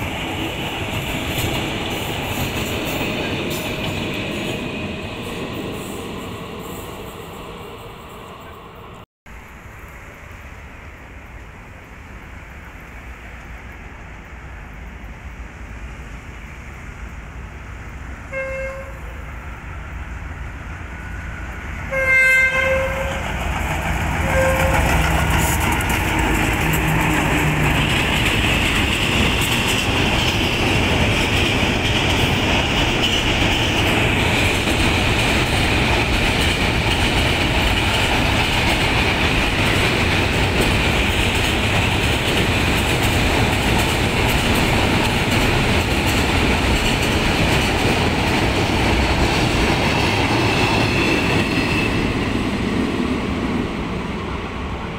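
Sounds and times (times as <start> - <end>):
freight wagons rumbling on rails: 0.0 - 54.9
train horn: 18.2 - 19.4, 21.8 - 23.4, 24.2 - 25.6
locomotive engine passing: 19.0 - 54.9.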